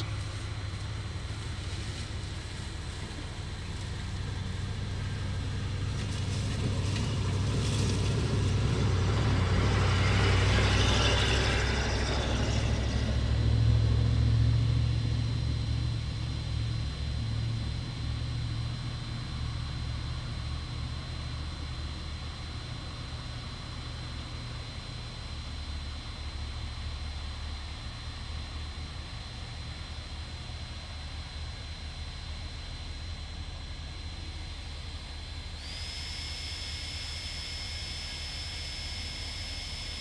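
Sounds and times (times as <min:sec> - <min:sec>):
vehicle passing by: 0:03.8 - 0:15.4.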